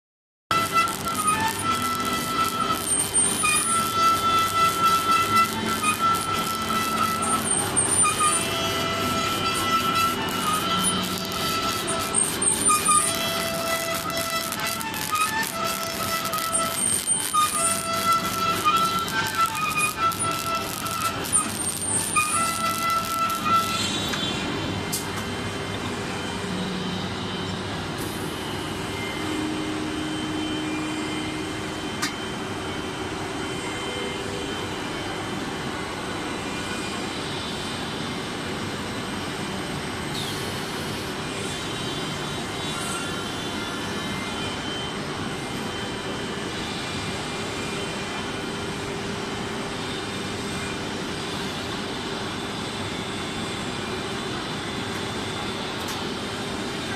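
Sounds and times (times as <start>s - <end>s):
laminating machine humming: 0.5s - 24.9s.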